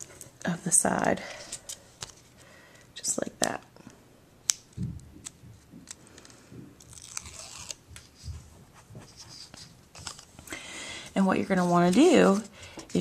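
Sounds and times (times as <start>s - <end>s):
paper rustling: 5.2s - 10.4s, 11.4s - 13.0s.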